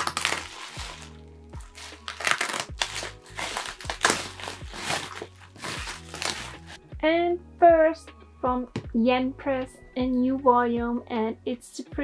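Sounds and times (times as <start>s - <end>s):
packaging being cut open: 0.0s - 6.8s
wrapping crinkling: 0.0s - 6.8s
quiet background music: 0.0s - 12.0s.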